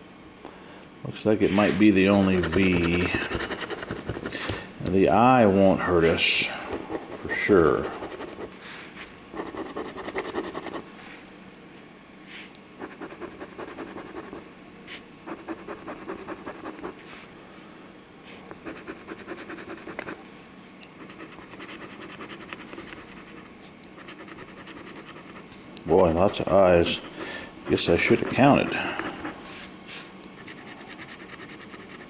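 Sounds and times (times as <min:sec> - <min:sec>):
coin scratching lottery ticket: 0:01.5 - 0:04.6, 0:06.8 - 0:08.6, 0:09.3 - 0:10.8, 0:12.8 - 0:14.4, 0:21.0 - 0:29.4, 0:30.4 - 0:32.0.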